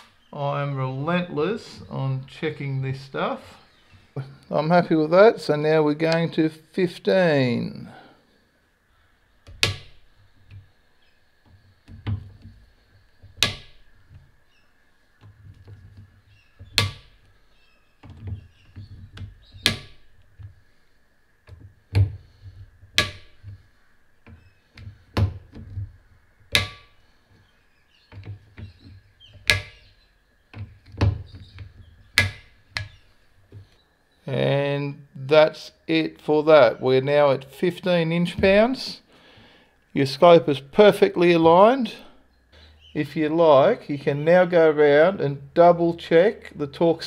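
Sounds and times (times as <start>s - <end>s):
low knocks from handling tool: 21.5s - 23.6s.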